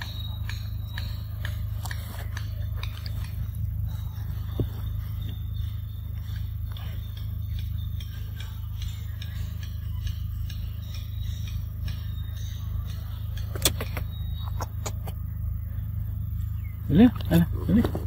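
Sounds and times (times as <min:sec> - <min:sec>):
monkey eating ticks and scrapes: 0:00.0 - 0:08.1, 0:13.0 - 0:15.2
steady low rumble: 0:00.0 - 0:18.0
sharp clicks: 0:12.8 - 0:15.3.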